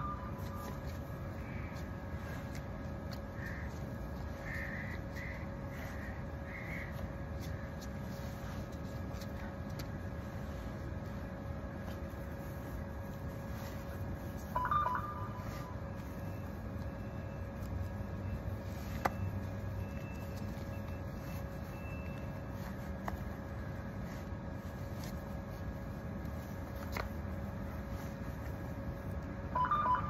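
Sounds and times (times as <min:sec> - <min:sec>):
city background hum: 0:00.0 - 0:30.0.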